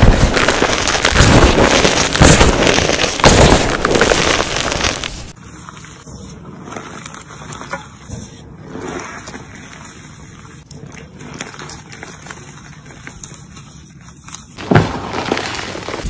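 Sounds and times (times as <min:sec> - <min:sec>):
hands crunching chalk: 0:00.0 - 0:08.1
soft crunching of powdery chalk: 0:00.0 - 0:16.0.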